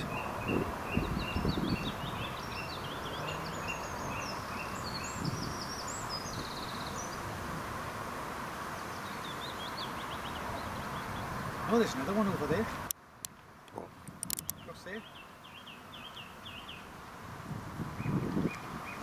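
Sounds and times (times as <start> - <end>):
small birds chirping: 0.0 - 7.4, 8.6 - 17.1, 17.9 - 19.0
outdoor background noise: 0.0 - 19.0.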